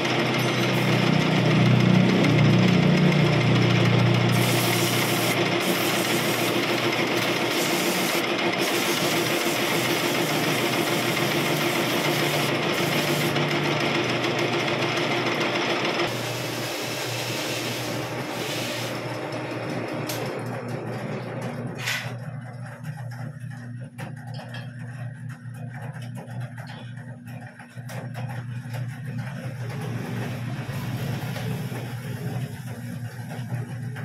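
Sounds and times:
metal lathe running: 0.0 - 24.0, 24.6 - 34.0.

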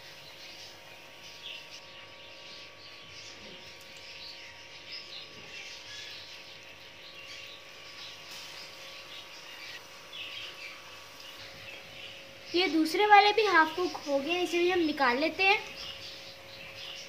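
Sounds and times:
hot oil sizzling and crackling: 6.6 - 16.5.

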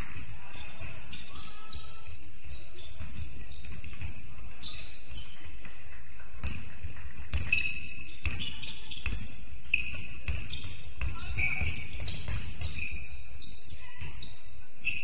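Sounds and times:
basketball bouncing on gym floor: 2.8 - 14.4.

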